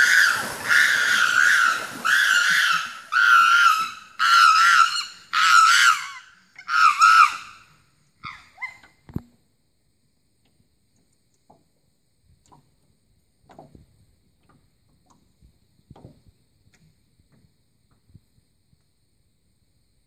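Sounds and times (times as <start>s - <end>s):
chimpanzee screaming: 0.0s - 7.6s.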